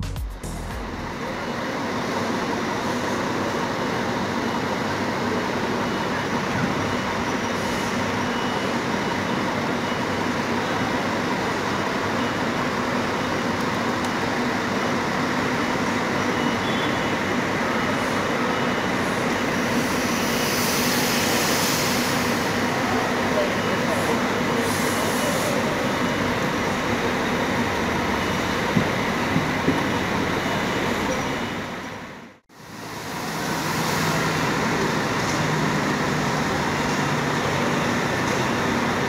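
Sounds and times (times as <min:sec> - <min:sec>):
diesel coach engine running: 0:00.0 - 0:39.0
hiss: 0:19.7 - 0:22.8, 0:24.6 - 0:25.7.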